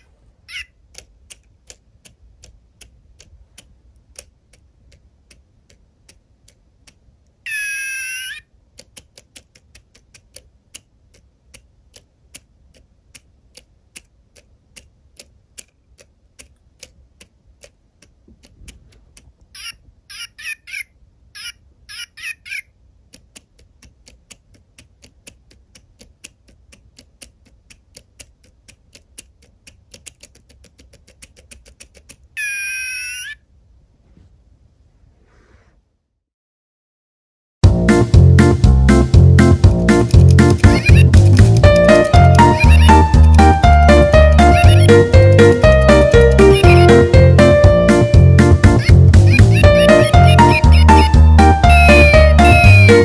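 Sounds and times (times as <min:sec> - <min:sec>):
toy high chirping beeps: 0:07.5 - 0:08.4, 0:19.6 - 0:22.7, 0:32.4 - 0:33.4, 0:40.6 - 0:41.2, 0:41.8 - 0:45.2, 0:45.9 - 0:47.2, 0:48.7 - 0:53.0
toy warbling electronic call: 0:07.5 - 0:08.4, 0:19.6 - 0:22.6, 0:32.4 - 0:33.4, 0:40.7 - 0:41.2, 0:41.8 - 0:45.2, 0:45.8 - 0:47.3, 0:48.7 - 0:53.0
fast steady ticking: 0:37.6 - 0:53.0.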